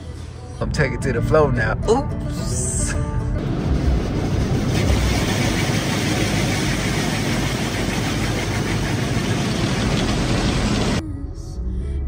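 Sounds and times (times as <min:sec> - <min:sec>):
water spraying over car: 0:04.2 - 0:11.0.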